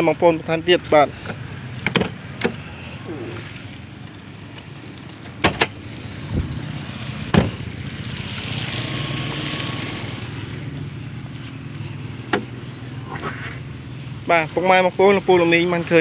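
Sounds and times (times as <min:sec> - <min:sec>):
car engine idling: 0:10.1 - 0:16.0.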